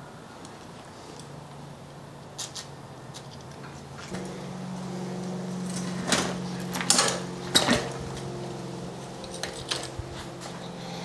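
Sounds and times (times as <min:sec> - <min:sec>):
steady low hum: 0:00.0 - 0:11.0
metallic clinks and rattles: 0:09.2 - 0:10.4.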